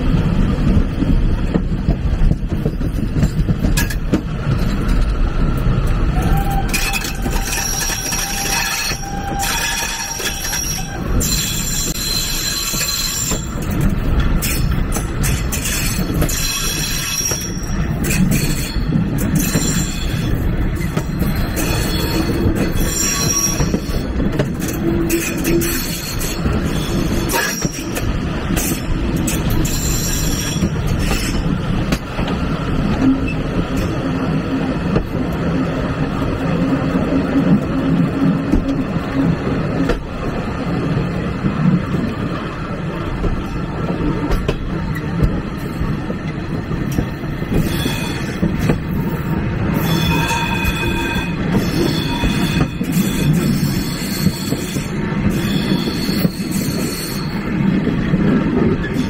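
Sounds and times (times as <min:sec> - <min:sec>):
train wheels rumbling on rails: 0:00.0 - 0:59.0
high-pitched wheel squeal: 0:06.2 - 0:13.5, 0:21.6 - 0:24.0, 0:49.8 - 0:57.4.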